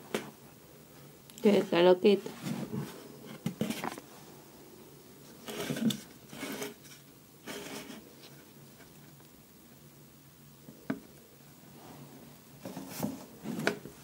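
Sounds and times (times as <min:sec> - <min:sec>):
faint steady hum: 0:00.0 - 0:14.0
rubbing rustling handling sounds: 0:01.4 - 0:04.5, 0:05.2 - 0:09.2.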